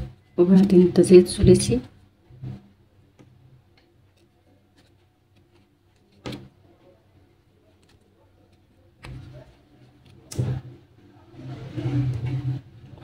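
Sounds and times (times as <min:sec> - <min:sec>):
crochet hook handling yarn: 0:03.2 - 0:06.8, 0:07.6 - 0:10.6.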